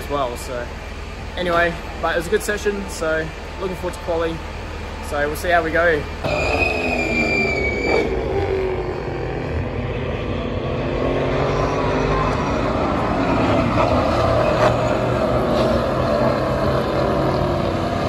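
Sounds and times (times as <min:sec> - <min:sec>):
race cars driving past: 0:06.1 - 0:18.0.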